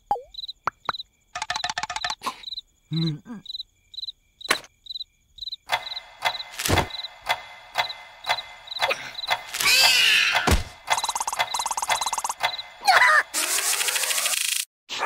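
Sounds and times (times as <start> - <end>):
crickets chirping: 0.0 - 9.8, 10.8 - 12.8
rattle of clicks: 1.4 - 2.2, 10.8 - 12.7
heavy thunk: 10.5 - 10.8.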